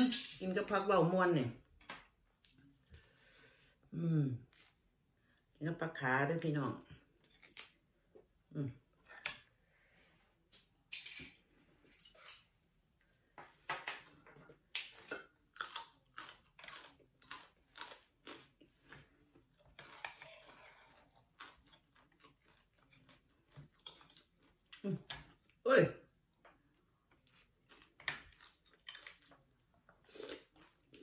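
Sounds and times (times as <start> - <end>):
wet chewing and crunching: 14.8 - 25.6, 26.5 - 31.0.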